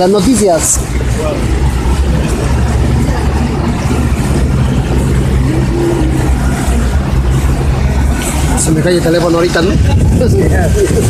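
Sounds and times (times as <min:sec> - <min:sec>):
vehicle engine droning: 0:00.0 - 0:11.0.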